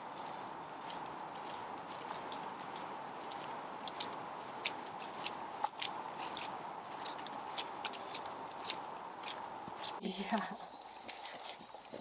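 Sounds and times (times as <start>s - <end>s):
footsteps on dry leaves: 0.0s - 12.0s.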